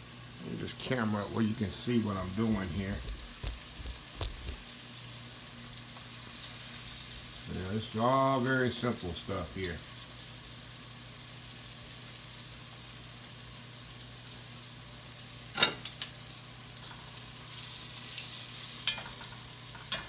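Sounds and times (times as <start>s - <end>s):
chicken sizzling in oil: 0.0s - 20.0s
metal tongs clink: 18.8s - 20.0s.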